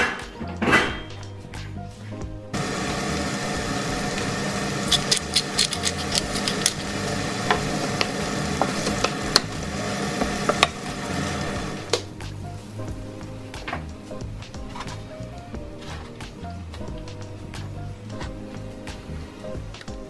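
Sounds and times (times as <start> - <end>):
vegetables sizzling in oil: 2.6 - 12.9.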